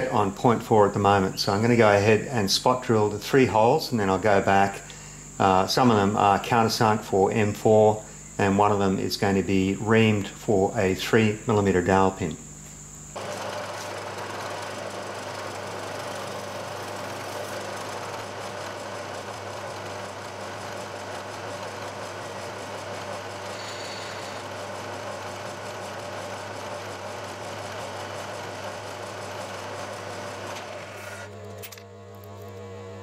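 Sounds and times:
milling machine running: 0:13.1 - 0:33.0
drill cutting metal: 0:13.2 - 0:31.4.

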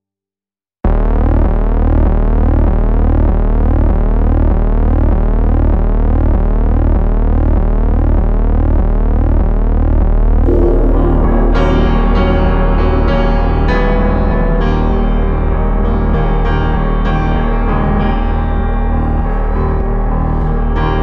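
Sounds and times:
pulsing bass: 0:00.9 - 0:21.0
gliding synth tones: 0:10.5 - 0:14.1
synthesizer drone: 0:10.5 - 0:21.0.

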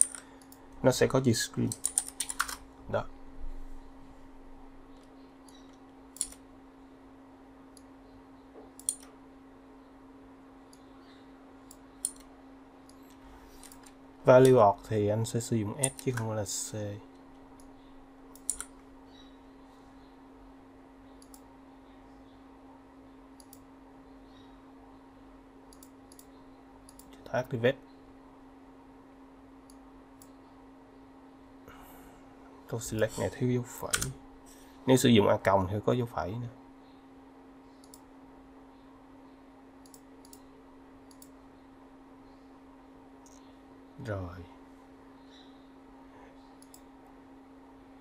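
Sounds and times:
computer mouse clicking: 0:00.0 - 0:00.7, 0:01.7 - 0:02.6, 0:04.9 - 0:06.4, 0:08.8 - 0:09.2, 0:11.7 - 0:14.6, 0:15.8 - 0:16.3, 0:18.3 - 0:18.8, 0:21.2 - 0:21.5, 0:23.4 - 0:23.7, 0:25.7 - 0:27.2, 0:33.9 - 0:34.1, 0:37.8 - 0:38.1, 0:39.8 - 0:40.5, 0:41.1 - 0:41.4, 0:46.6 - 0:46.9
faint electrical hum: 0:00.0 - 0:48.0.

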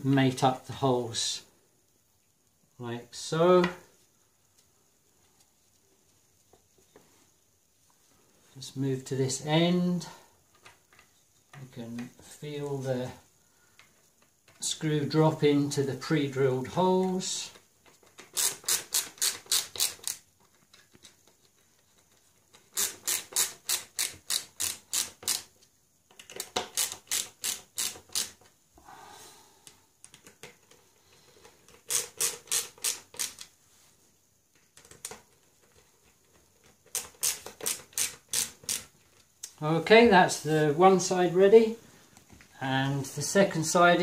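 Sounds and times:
ratchet screwdriver clicking: 0:18.2 - 0:20.2, 0:22.5 - 0:25.5, 0:26.2 - 0:28.4, 0:31.8 - 0:33.5, 0:36.9 - 0:38.9.

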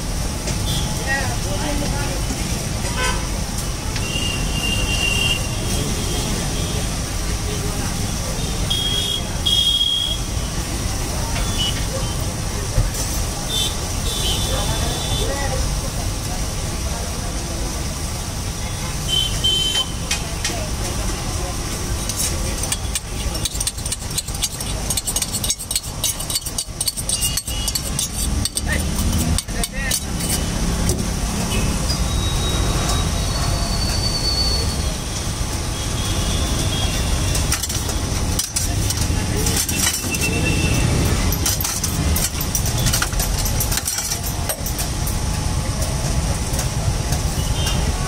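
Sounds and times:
street traffic rumble: 0:00.0 - 0:48.0
steel utensils clinking: 0:21.8 - 0:34.2, 0:37.1 - 0:45.4.

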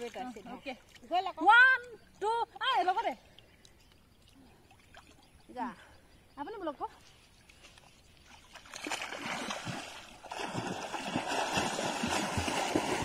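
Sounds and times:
swimmer splashing: 0:08.3 - 0:13.0.

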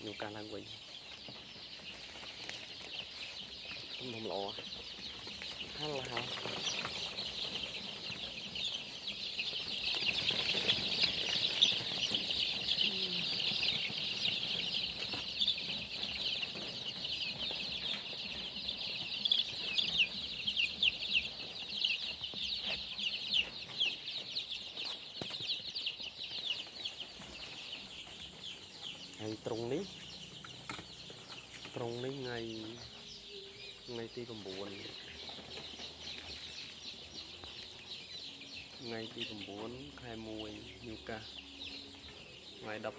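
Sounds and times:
chicks peeping: 0:00.0 - 0:42.9.

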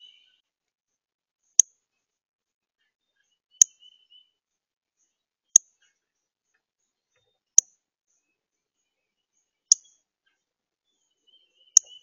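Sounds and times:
bird chip calls: 0:00.0 - 0:00.4, 0:03.2 - 0:04.2, 0:11.0 - 0:12.0.

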